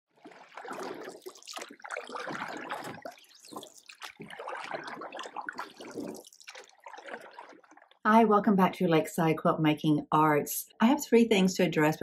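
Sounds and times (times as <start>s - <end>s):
water trickling and splashing: 0.1s - 8.0s.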